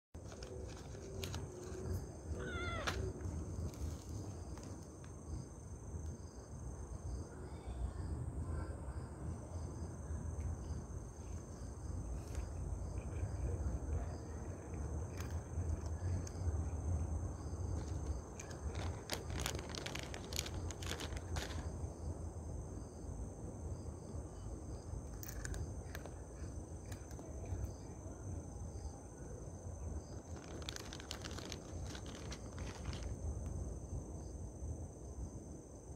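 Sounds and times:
cat crunching dry treats: 0.2 - 5.0, 12.2 - 21.9, 25.0 - 27.7, 30.1 - 33.4
high insect drone: 0.2 - 35.9.

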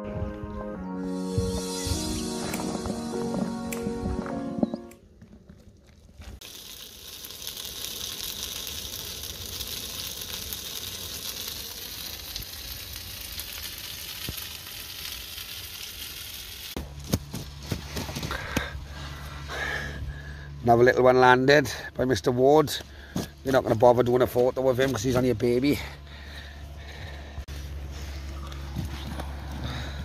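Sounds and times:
low hum: 0.0 - 30.0
rain falling on water: 6.4 - 16.7.

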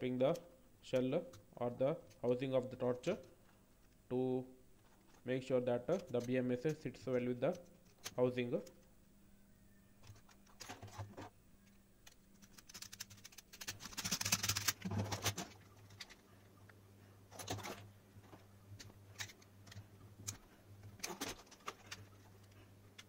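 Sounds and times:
plastic parts clicking and rattling: 5.9 - 8.9, 10.0 - 23.0.

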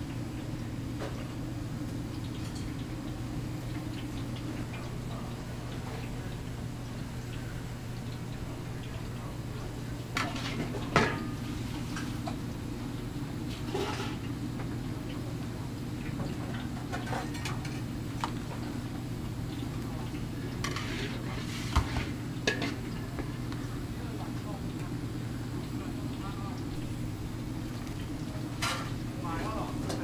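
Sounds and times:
steady low hum: 0.0 - 30.0
dishes and utensils clinking: 10.2 - 11.4.

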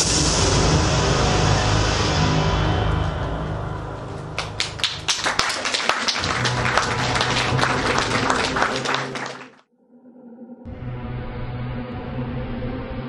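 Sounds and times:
music: 0.0 - 9.6, 10.6 - 13.0
crowd applause: 4.2 - 9.6.

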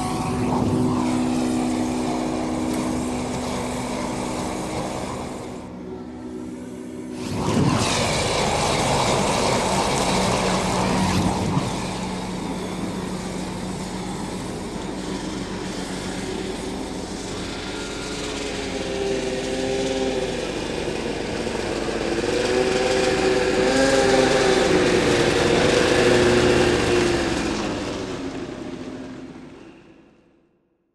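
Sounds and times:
gas flames roaring: 0.0 - 29.8.

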